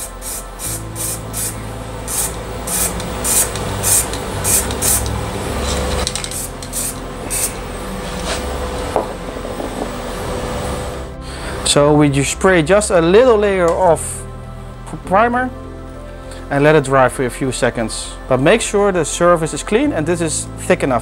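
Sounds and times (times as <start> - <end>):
aerosol can spraying: 0.0 - 8.5.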